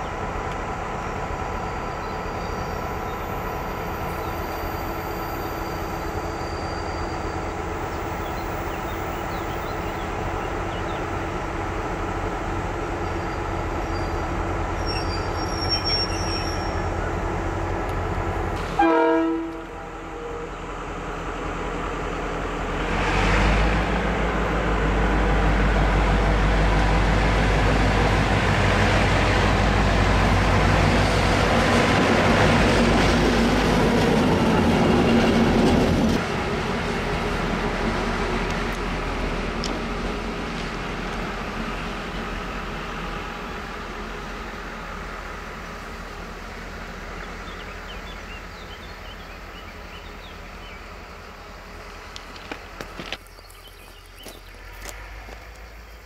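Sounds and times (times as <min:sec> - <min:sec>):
train horn blast: 0:18.6 - 0:20.5.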